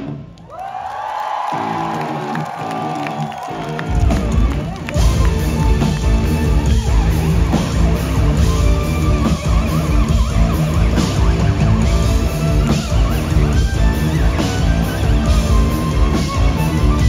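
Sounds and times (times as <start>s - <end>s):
distorted electric guitars: 0.0s - 0.3s, 1.5s - 17.0s
bass: 1.7s - 17.0s
drum beat: 3.7s - 17.0s.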